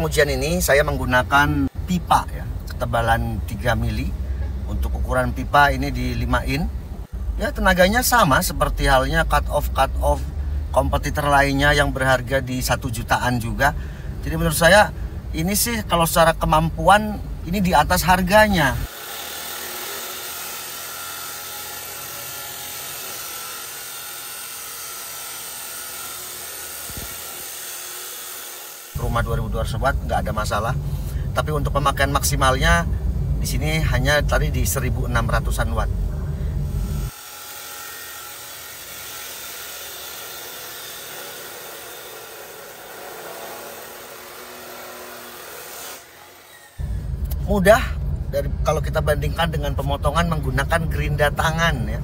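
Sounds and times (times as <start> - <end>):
cut-off saw grinding steel pipe: 18.9 - 29.0, 36.8 - 47.0.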